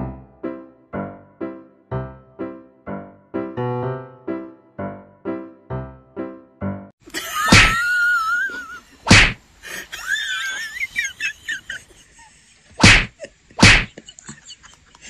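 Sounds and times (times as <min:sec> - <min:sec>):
cats hissing: 0:07.5 - 0:07.9, 0:08.5 - 0:09.9, 0:12.8 - 0:13.9.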